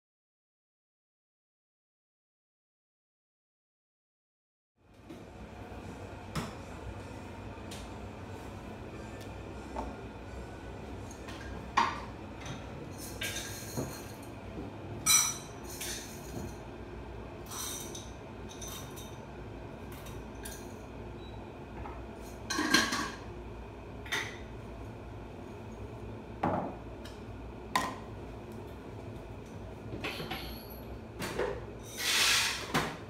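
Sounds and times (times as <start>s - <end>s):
faint steady hum: 4.8s - 32.0s
containers and utensils clinking: 12.9s - 14.3s.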